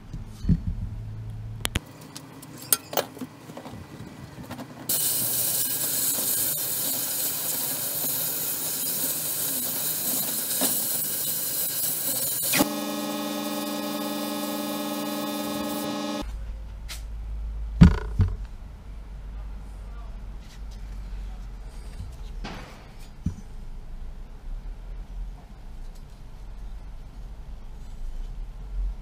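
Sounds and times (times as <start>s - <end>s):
sandblast air hiss: 4.9s - 12.8s
pitched motor hum: 12.1s - 16.2s.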